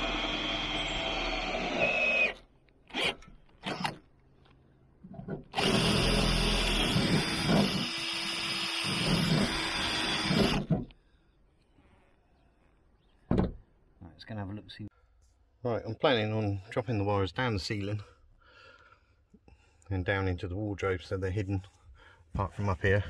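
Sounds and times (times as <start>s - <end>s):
cordless drill boring: 0.0s - 4.0s, 5.5s - 10.8s.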